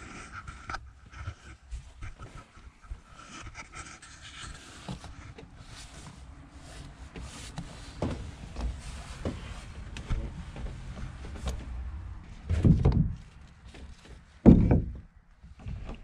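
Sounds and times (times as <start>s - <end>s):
wooden stick scraping boat hull: 0.1s - 16.0s
loud thumps: 12.5s - 13.2s, 14.4s - 15.1s.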